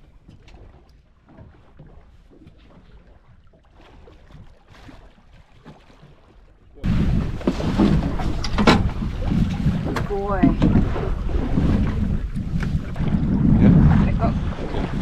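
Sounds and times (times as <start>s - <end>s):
water lapping against boat: 0.0s - 15.0s
wind noise on microphone: 6.8s - 15.0s.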